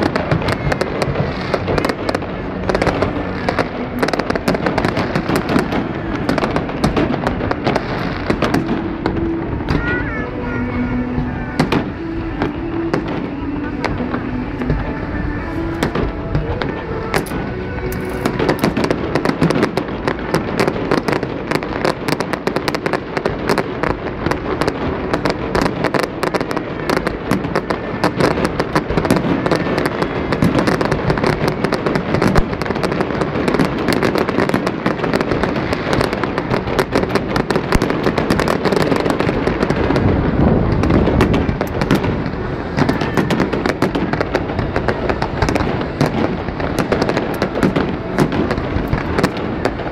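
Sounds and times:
fireworks bangs and crackles: 0:00.0 - 0:49.9.

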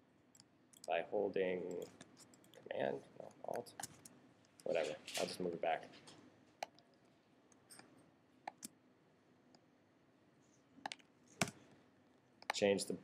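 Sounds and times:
computer mouse clicks: 0:00.3 - 0:00.9, 0:03.5 - 0:04.7, 0:06.6 - 0:06.9, 0:08.5 - 0:08.8, 0:10.8 - 0:11.7.

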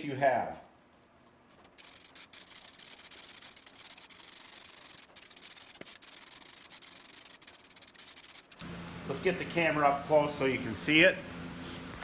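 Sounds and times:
spray gun hissing: 0:01.8 - 0:08.6.

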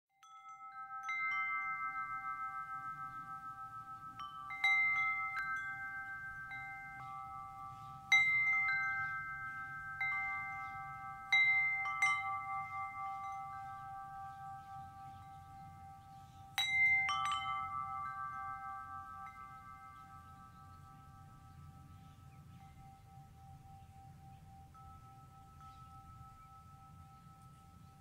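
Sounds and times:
wind chimes ringing: 0:00.1 - 0:28.0.

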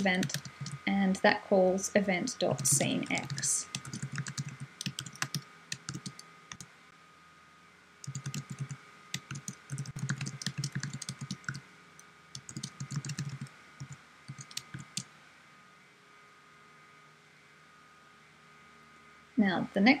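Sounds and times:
computer keyboard typing: 0:00.0 - 0:00.9, 0:02.6 - 0:06.7, 0:08.0 - 0:11.6, 0:12.4 - 0:15.1.

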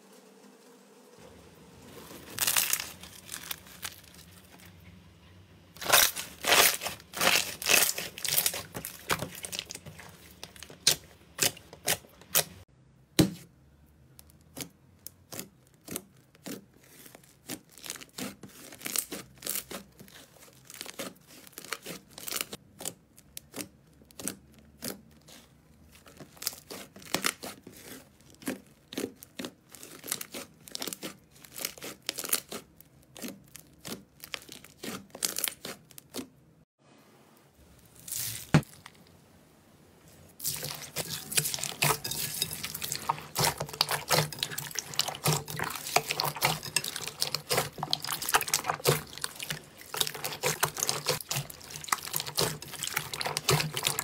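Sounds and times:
slime popping and crackling: 0:02.3 - 0:04.4, 0:05.8 - 0:12.6, 0:40.4 - 0:54.0.

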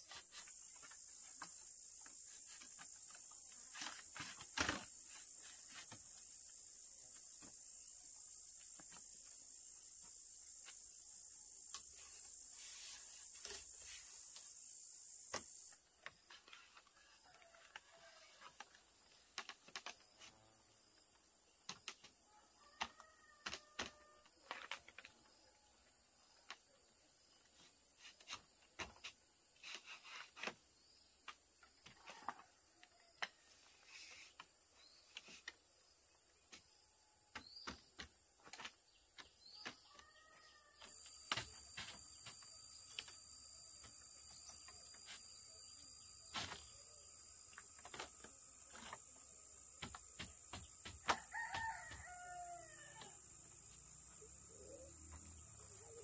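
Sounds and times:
high insect drone: 0:00.0 - 0:15.8, 0:39.8 - 0:56.0
rooster crowing: 0:51.0 - 0:53.2.

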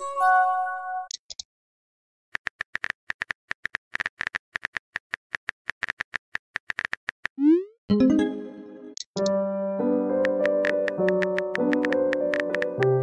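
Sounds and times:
phone keyboard clicks: 0:10.2 - 0:12.8.

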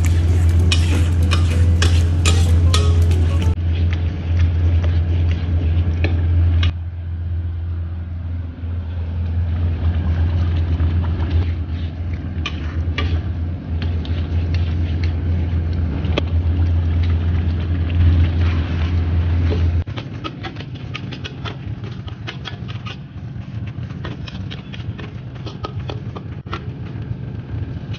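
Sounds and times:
metal spatula scraping a wok: 0:00.0 - 0:03.6
low steady hum: 0:00.0 - 0:22.2.

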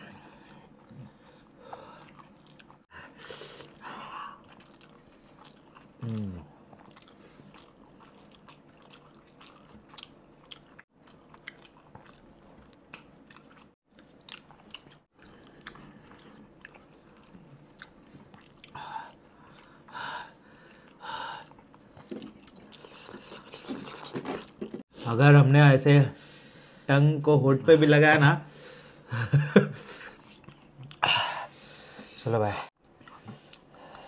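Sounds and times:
chewing noodles: 0:00.4 - 0:02.9, 0:03.6 - 0:19.8, 0:20.8 - 0:24.8.

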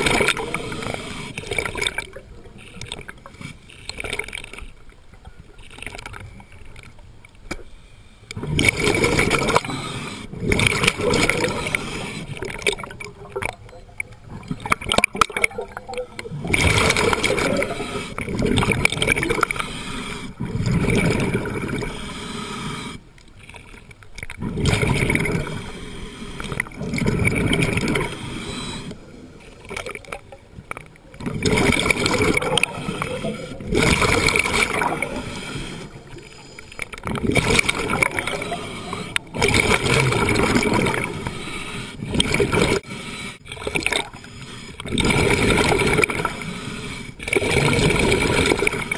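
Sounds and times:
breathing through a regulator: 0:00.0 - 0:04.0, 0:07.6 - 0:13.5, 0:16.9 - 0:23.2, 0:25.0 - 0:29.7, 0:31.6 - 0:48.9
exhaled bubbles gurgling: 0:00.0 - 0:07.0, 0:08.3 - 0:48.9.

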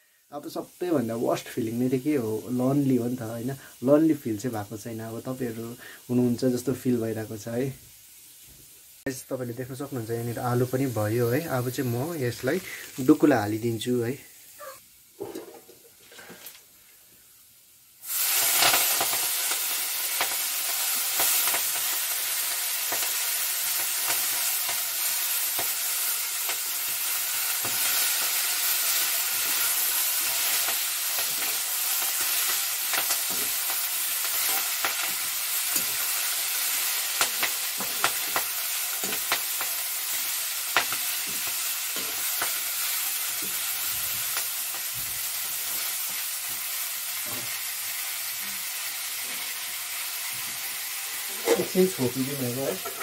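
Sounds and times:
greens sizzling in hot oil: 0:00.0 - 0:53.0
metal spatula scraping wok: 0:52.6 - 0:53.0.

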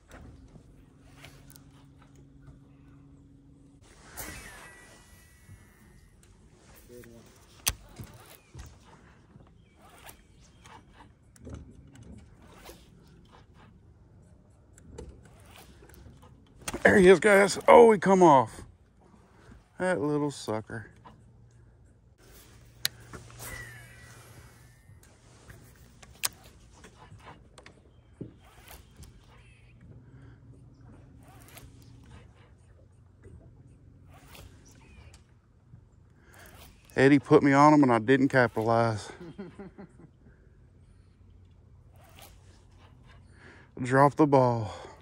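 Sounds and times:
low steady hum: 0:00.0 - 0:45.0
fishing tackle clicking and scraping: 0:05.0 - 0:18.4, 0:19.0 - 0:29.5
fishing reel cranking: 0:22.3 - 0:26.6.

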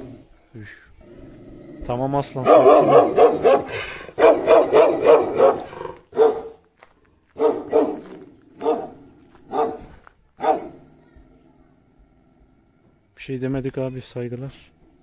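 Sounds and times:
large dog barking: 0:02.2 - 0:06.6, 0:07.3 - 0:11.0.

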